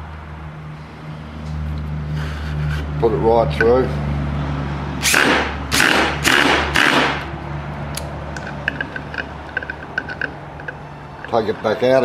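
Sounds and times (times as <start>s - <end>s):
screw driven through plywood: 5.0s - 7.2s.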